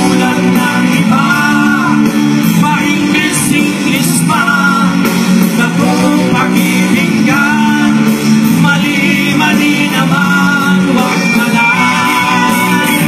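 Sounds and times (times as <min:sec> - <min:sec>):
bass guitar: 0:00.0 - 0:13.0
drums: 0:00.0 - 0:13.0
electric guitar: 0:00.0 - 0:13.0
man singing: 0:00.0 - 0:13.0.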